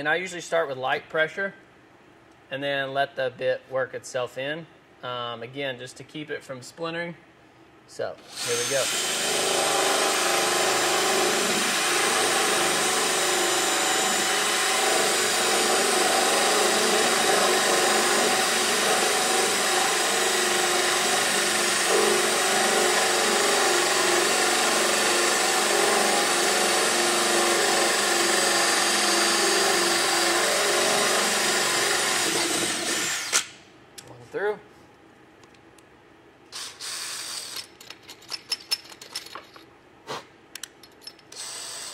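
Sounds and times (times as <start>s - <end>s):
drill cutting through fibreglass: 8.3s - 33.6s, 36.6s - 37.6s, 41.4s - 41.9s.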